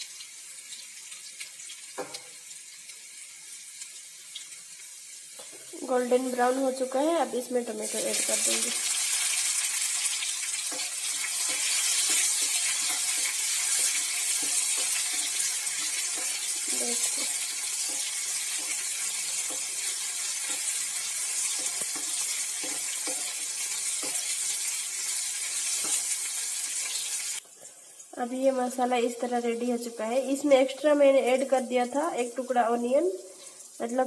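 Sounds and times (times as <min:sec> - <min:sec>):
vegetables sizzling in hot oil: 0:00.0 - 0:34.0
spatula scraping pan: 0:07.9 - 0:26.2.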